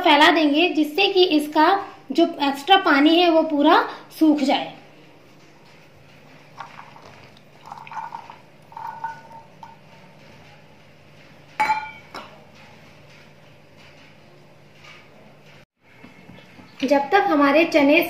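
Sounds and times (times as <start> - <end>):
metal bowl clink: 7.6 - 9.9, 11.6 - 12.4
metal bowl ringing: 7.6 - 9.9, 11.6 - 12.4.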